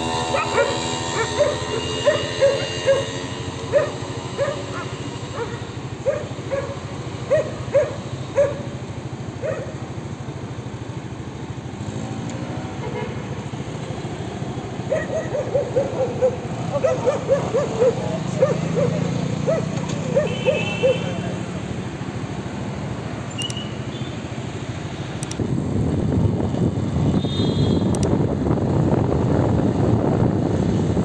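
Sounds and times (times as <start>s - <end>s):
dogs barking: 0.0s - 9.9s, 14.8s - 21.2s
motorbike passing: 0.0s - 31.0s
passing cars humming: 0.0s - 31.0s.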